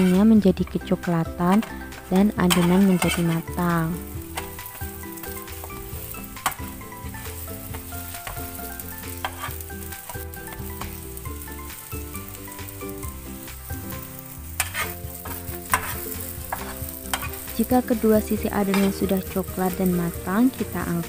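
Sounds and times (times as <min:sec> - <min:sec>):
pancakes sizzling in oil: 0:00.0 - 0:21.0
metal spatula clicking on pan: 0:02.4 - 0:03.4, 0:04.3 - 0:04.8, 0:06.4 - 0:06.7, 0:14.6 - 0:17.4.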